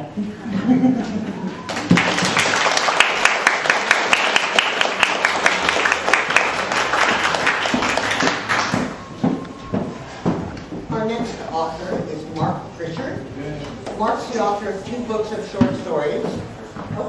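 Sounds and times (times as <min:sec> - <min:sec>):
audience applauding: 0:01.5 - 0:09.3.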